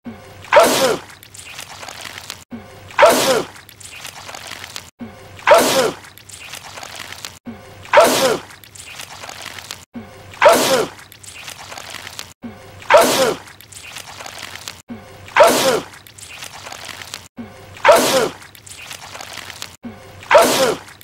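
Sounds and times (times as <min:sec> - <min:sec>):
man sneezing loudly: 0:12.9 - 0:13.4, 0:17.8 - 0:18.4, 0:20.3 - 0:20.8.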